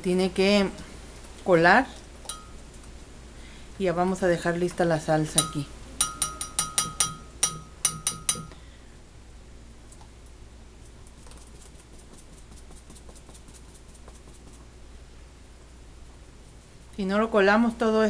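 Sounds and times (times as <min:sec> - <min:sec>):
metal strainer knocking on bowl: 0:05.4 - 0:08.5.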